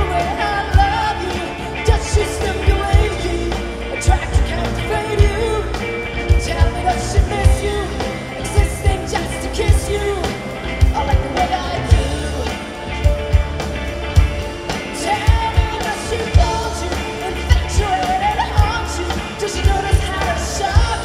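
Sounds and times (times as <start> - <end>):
woman singing into microphone: 0.0 - 5.8
live rock band playing: 0.0 - 21.0.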